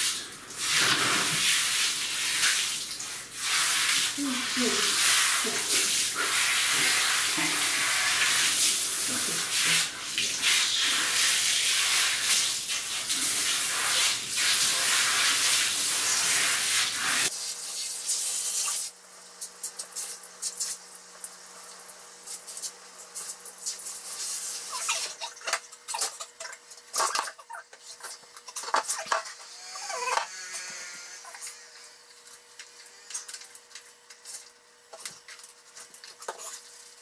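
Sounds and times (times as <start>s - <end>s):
shower head spraying water: 0.0s - 19.0s.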